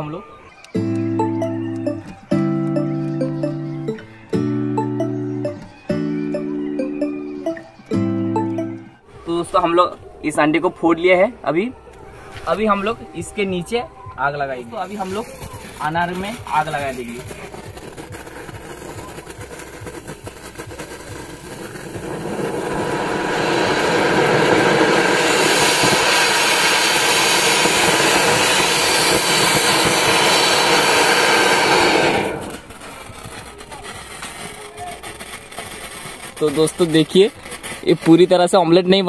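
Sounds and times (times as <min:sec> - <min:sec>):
fountain fireworks hissing: 0:14.3 - 0:39.0.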